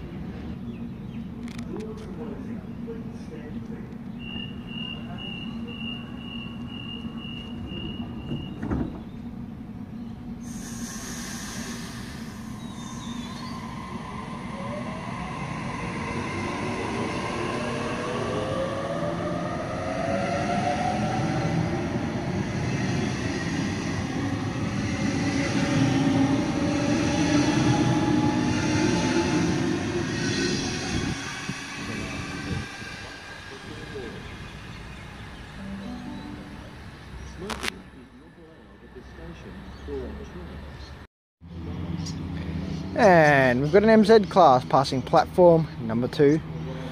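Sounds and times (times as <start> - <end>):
train traction motors whining: 1.5 - 40.5
door-closing warning beeps: 4.3 - 9.0
train doors knocking shut: 7.6 - 9.2
air hiss: 10.4 - 13.5.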